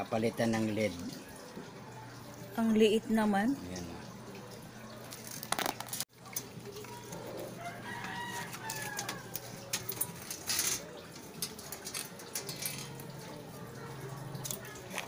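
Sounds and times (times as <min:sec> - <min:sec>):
rooster crowing: 0:07.4 - 0:09.7.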